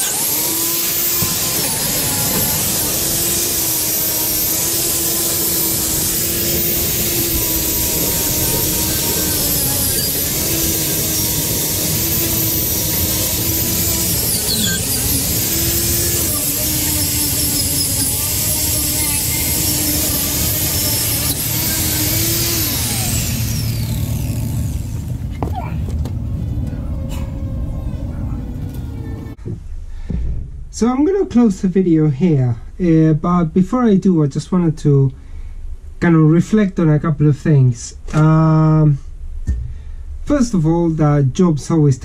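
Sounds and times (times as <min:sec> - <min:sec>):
angle grinder grinding metal: 0:00.0 - 0:25.4.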